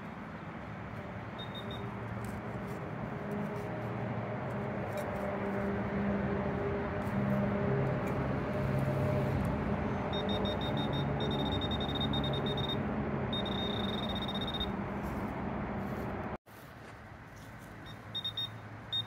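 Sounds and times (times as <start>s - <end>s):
metal detector probe beeping: 1.4s - 1.9s, 10.1s - 14.7s, 17.8s - 19.0s.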